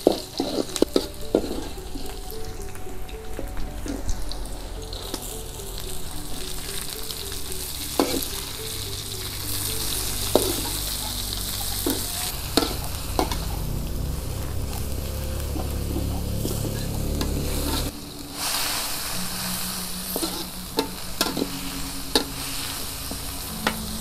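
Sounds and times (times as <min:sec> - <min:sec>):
oil sizzling in a wok: 0:00.0 - 0:24.0
metal spatula scraping a pan: 0:15.6 - 0:18.7, 0:20.0 - 0:23.9.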